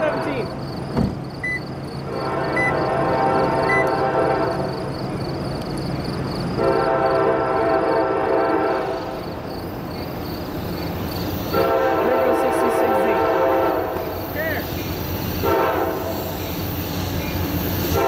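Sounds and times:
locomotive engine rumble: 0.0s - 18.0s
locomotive air horn blasts: 2.1s - 4.8s, 6.6s - 9.0s, 11.5s - 14.1s, 15.4s - 16.4s.

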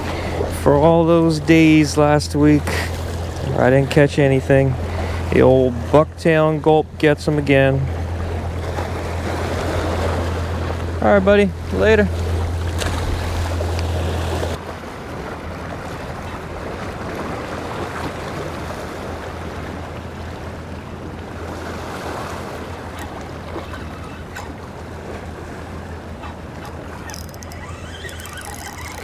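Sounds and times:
surf washing against rocks: 0.0s - 29.0s.

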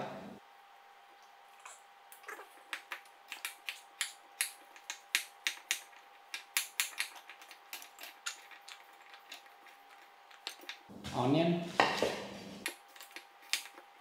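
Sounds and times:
knife chopping on wooden board: 11.7s - 12.4s.

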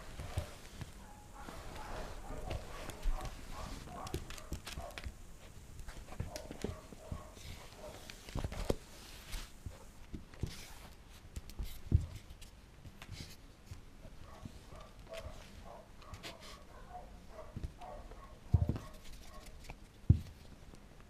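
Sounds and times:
puppy claws clicking on wood floor: 2.5s - 5.2s.

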